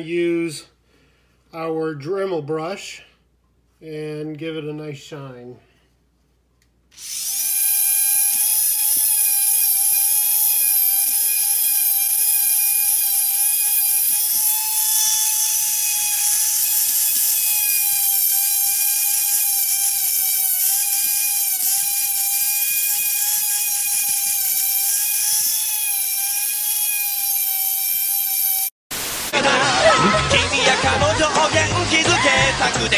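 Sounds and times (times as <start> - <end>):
rotary tool high whine: 6.9 - 28.8.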